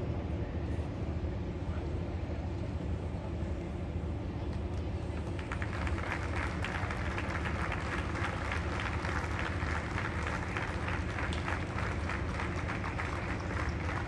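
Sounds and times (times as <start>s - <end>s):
low outdoor rumble: 0.0s - 14.0s
crowd applauding: 5.3s - 14.0s.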